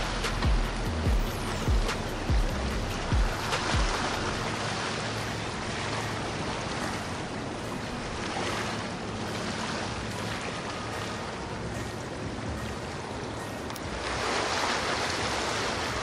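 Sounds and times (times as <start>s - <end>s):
boat engine hum: 0.0s - 16.0s
water rushing from hull: 0.0s - 16.0s.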